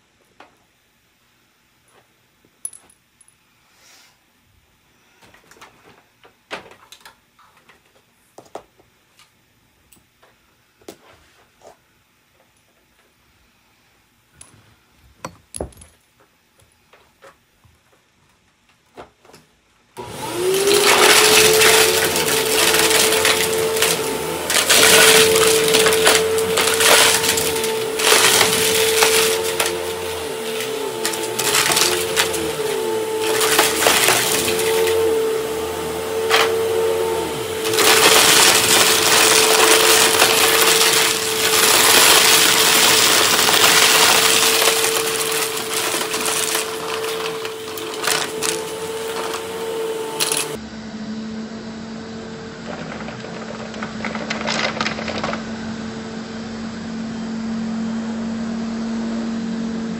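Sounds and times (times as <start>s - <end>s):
vacuum cleaner motor humming: 20.0s - 59.9s
clicks and rattles: 52.7s - 55.4s.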